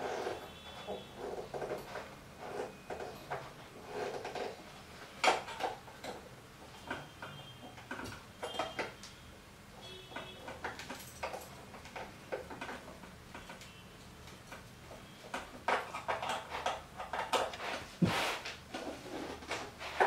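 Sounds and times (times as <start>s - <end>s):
metal parts clicking and knocking: 10.2s - 17.5s.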